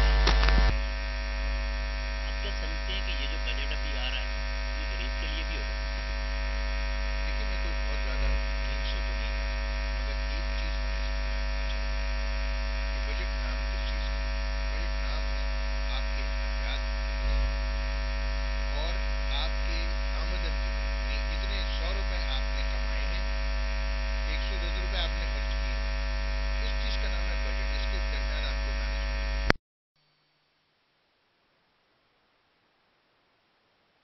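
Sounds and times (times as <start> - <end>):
electrical mains hum: 0.0 - 34.0
faint indistinct voices: 2.3 - 4.2, 4.8 - 5.6, 7.3 - 9.3.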